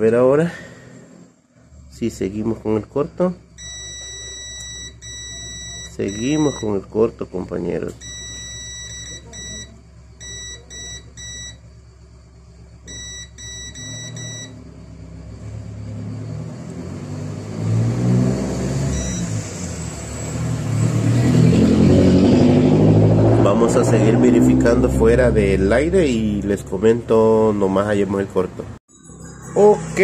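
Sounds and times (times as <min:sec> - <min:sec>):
multimeter short high beeps: 0:03.6 - 0:06.8, 0:08.0 - 0:11.6, 0:12.9 - 0:14.6, 0:18.9 - 0:19.4.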